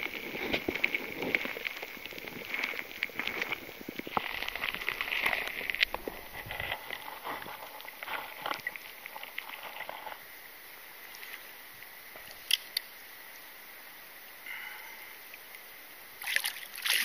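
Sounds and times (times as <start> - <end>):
water splashing and dripping: 16.2 - 17.0.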